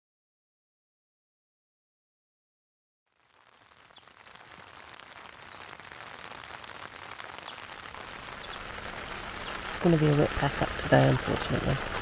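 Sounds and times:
rain pattering on a tent: 3.1 - 12.0
sharp raindrop ticks: 3.2 - 12.0.

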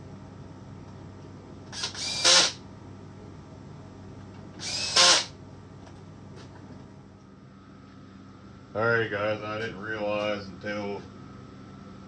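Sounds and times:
cordless drill spinning: 1.7 - 2.6, 4.6 - 5.3.

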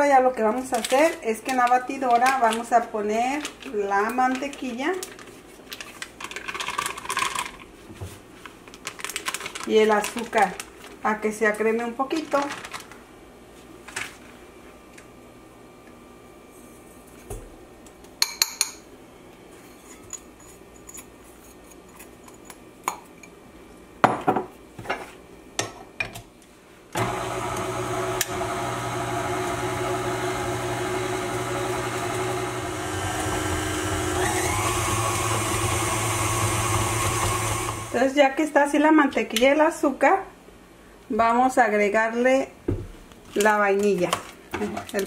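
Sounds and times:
stand mixer running: 27.0 - 38.0.

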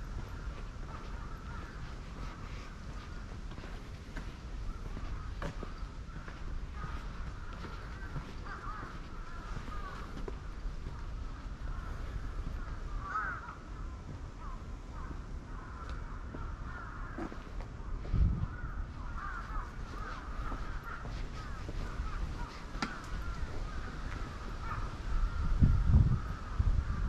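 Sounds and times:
crows cawing: 0.0 - 27.0
bird calls chattering: 0.1 - 13.6, 18.5 - 25.6.

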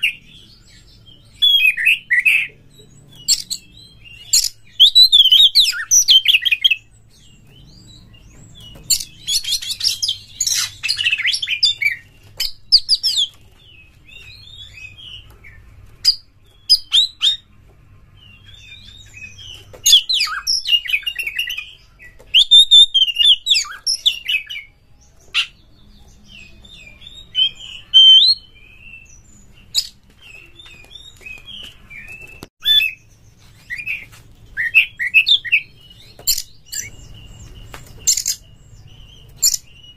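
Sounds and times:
bird singing whistled phrases: 26.4 - 29.1.

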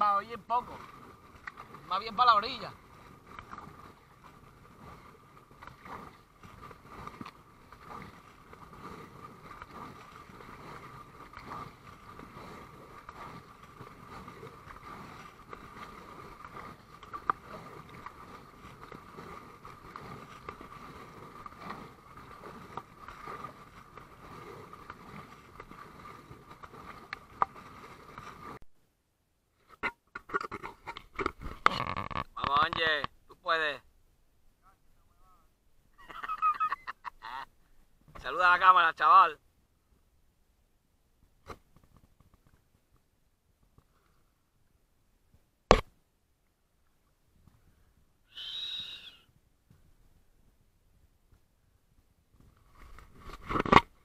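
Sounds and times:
paddle splashing in water: 0.3 - 28.6.

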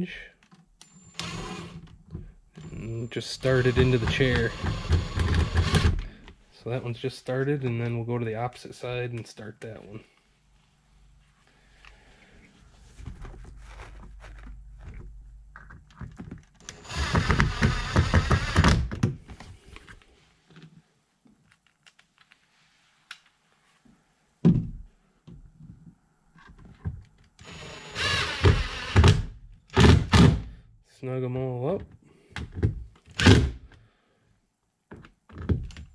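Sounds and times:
impact driver hammering screws: 3.4 - 6.0, 16.6 - 18.9, 27.4 - 30.4.

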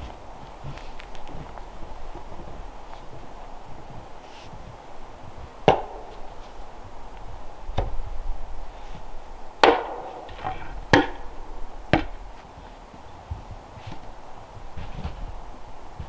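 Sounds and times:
tool chopping wood: 5.6 - 6.2, 9.6 - 11.3, 11.9 - 12.2.

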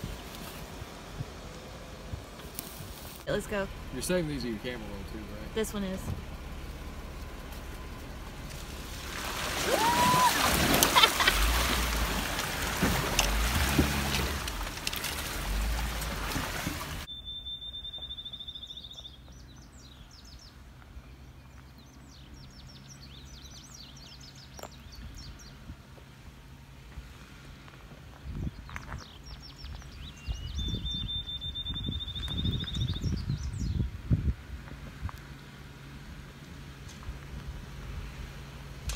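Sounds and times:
distant car engine idling: 0.0 - 10.3
birds singing and chirping: 17.0 - 25.6, 28.1 - 33.9.

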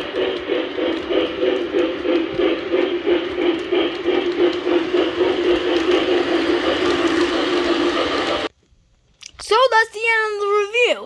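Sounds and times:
model train motor and wheels hum: 0.0 - 8.5
wheels clicking over track: 0.0 - 8.5.

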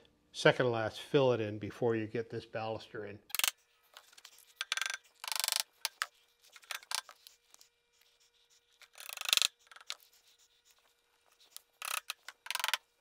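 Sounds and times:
tools clicking and rubbing: 3.3 - 13.0
tool scraping and knocking: 11.4 - 12.9.

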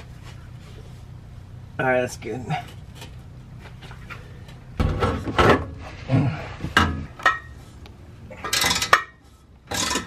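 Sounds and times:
tools and pipe knocking and scraping: 2.6 - 7.7, 8.3 - 10.0.

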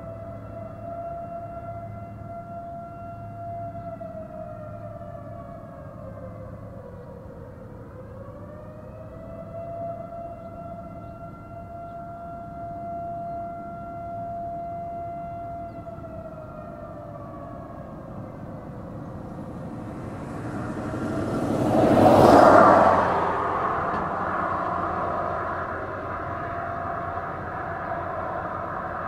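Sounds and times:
warning siren wailing: 0.0 - 29.0
rush of noise: 19.0 - 29.0.

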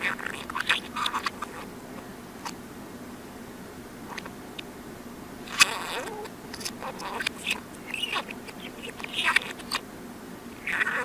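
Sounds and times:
reversed budgerigar chatter: 0.0 - 2.6, 5.5 - 9.9, 10.5 - 11.0
faint steady hum: 0.0 - 11.0.

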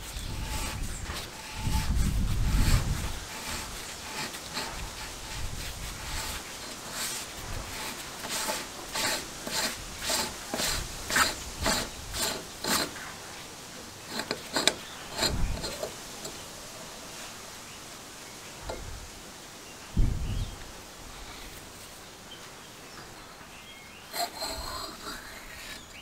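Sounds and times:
pump cap scraping unscrewed: 0.0 - 13.1, 14.1 - 16.4, 24.1 - 26.0.

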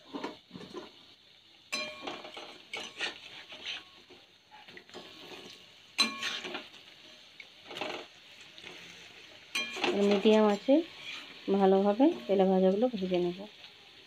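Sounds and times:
oil sizzling: 0.0 - 14.0
metal utensil scraping metal pan: 1.7 - 4.1, 6.0 - 6.8, 8.8 - 13.0.

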